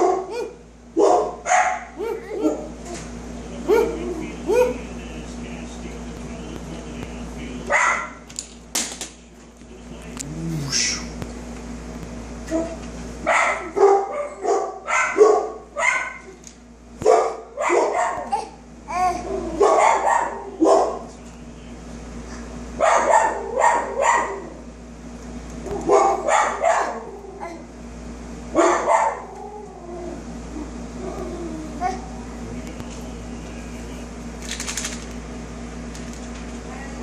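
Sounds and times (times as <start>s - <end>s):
dog barking: 0.0s - 2.8s, 3.6s - 4.9s, 7.7s - 8.2s, 13.2s - 16.4s, 17.0s - 18.4s, 19.5s - 21.1s, 22.8s - 24.6s, 25.7s - 27.2s, 28.5s - 29.3s.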